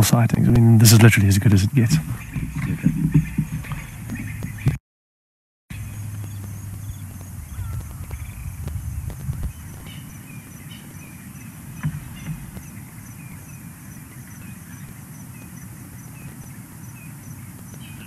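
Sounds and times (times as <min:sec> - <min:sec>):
low rumble: 0:05.7 - 0:10.0
faint bird chirps: 0:05.7 - 0:18.0.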